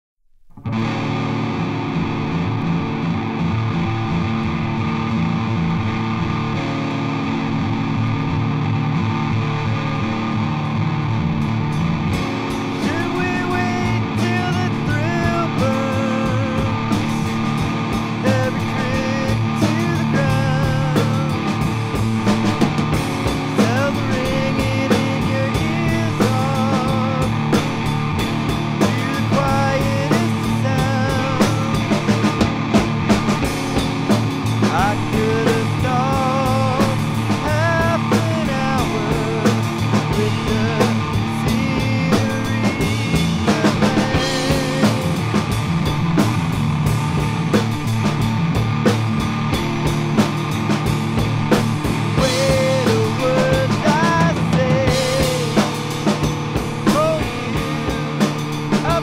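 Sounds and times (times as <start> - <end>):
drums: 0.3 - 59.0
distorted electric guitar chords: 0.5 - 59.0
person singing: 12.8 - 27.9, 28.7 - 32.4, 34.6 - 45.5, 51.9 - 56.2, 56.8 - 59.0.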